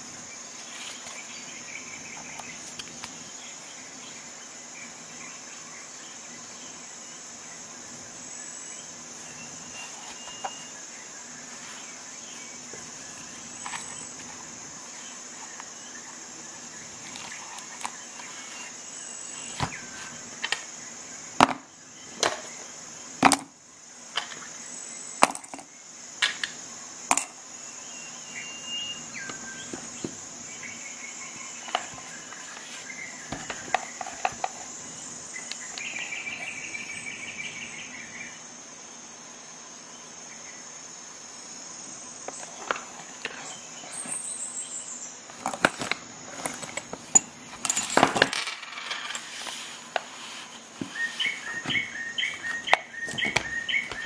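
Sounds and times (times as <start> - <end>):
steady high-pitched hiss: 0.0 - 54.0
metal tool pieces clicking: 45.5 - 49.3
pouch rustling scrape: 49.0 - 51.8.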